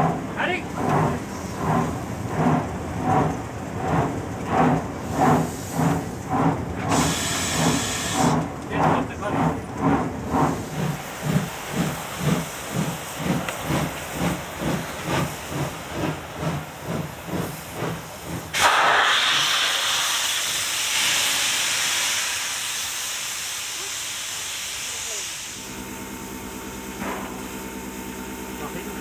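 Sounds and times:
steam locomotive chuffing: 0:00.0 - 0:29.0
steam blowing off hiss: 0:06.9 - 0:08.4, 0:10.4 - 0:25.7.

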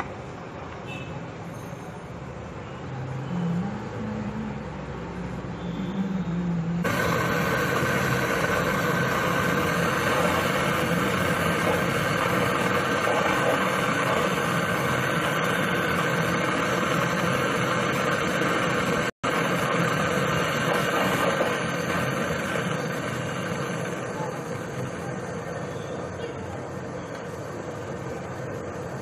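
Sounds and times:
torch flame hissing: 0:06.8 - 0:29.0.

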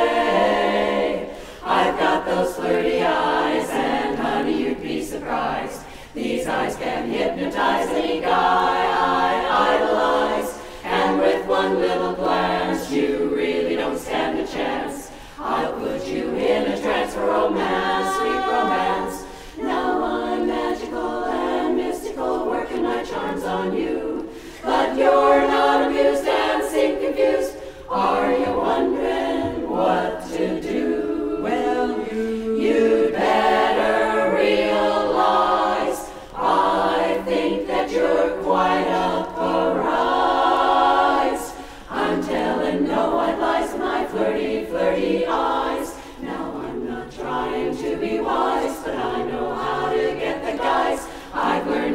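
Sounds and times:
women's chorus singing a cappella: 0:00.0 - 0:51.9
singers breathing: 0:01.2 - 0:01.7, 0:05.8 - 0:06.2, 0:10.6 - 0:10.9, 0:15.1 - 0:15.4, 0:19.2 - 0:19.6, 0:24.3 - 0:24.6, 0:27.5 - 0:27.9, 0:41.5 - 0:41.9, 0:45.9 - 0:46.2, 0:51.0 - 0:51.4.

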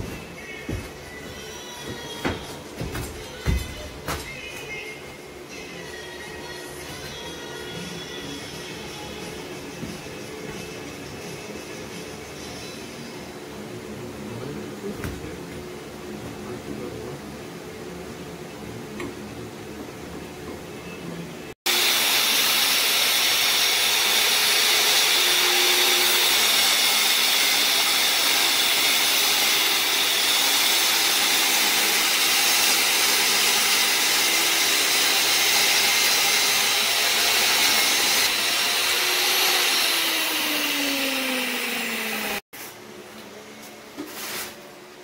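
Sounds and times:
table saw cutting wood panel: 0:21.7 - 0:42.5.

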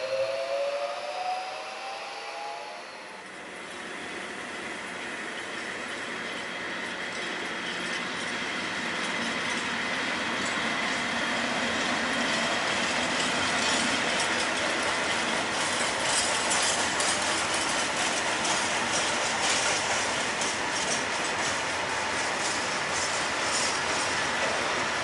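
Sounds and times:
freight train wheels rumbling: 0:03.1 - 0:25.0
train wagons clanking: 0:05.3 - 0:25.0.

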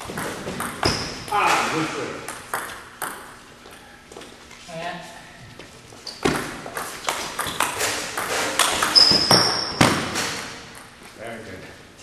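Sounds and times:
brief high squeak: 0:09.0 - 0:09.8.

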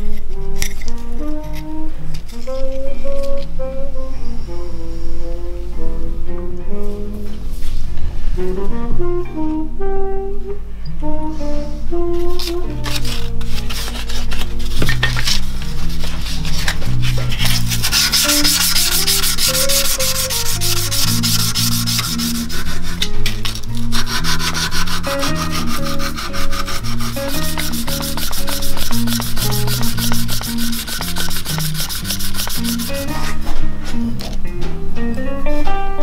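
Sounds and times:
guitar music: 0:00.0 - 0:36.0
hand-sanding wooden handle: 0:12.3 - 0:33.4.

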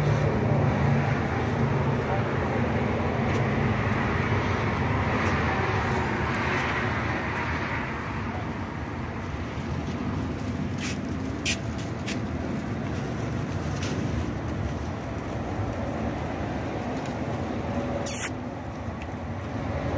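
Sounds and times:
short sharp clicks: 0:18.0 - 0:18.4.

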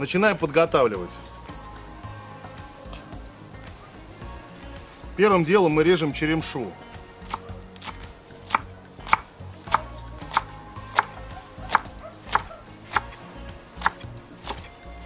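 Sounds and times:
knife chopping on wooden board: 0:07.3 - 0:13.2, 0:13.8 - 0:14.7.

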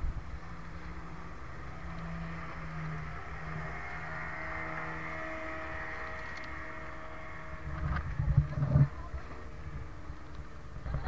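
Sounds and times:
boat motor humming and whining: 0:00.0 - 0:11.0
low thumps and rumbles: 0:06.0 - 0:11.0.

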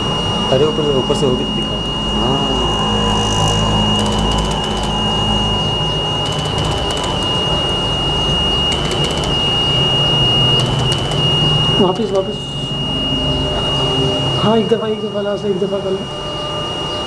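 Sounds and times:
low hum: 0:00.0 - 0:17.0
motor high whine: 0:00.0 - 0:17.0
buzzing pulses and clicks: 0:01.4 - 0:12.9.

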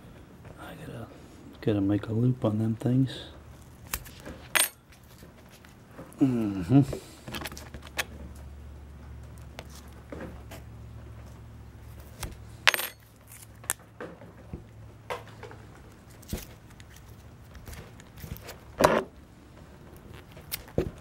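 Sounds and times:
cable and tools rustling: 0:03.5 - 0:06.2, 0:09.2 - 0:21.0.

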